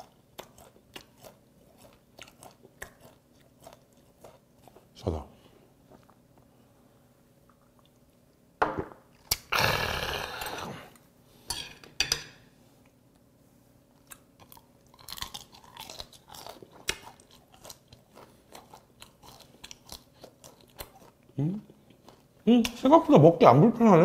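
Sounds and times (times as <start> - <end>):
crunching shrimp shell chewing: 14.0 - 22.4.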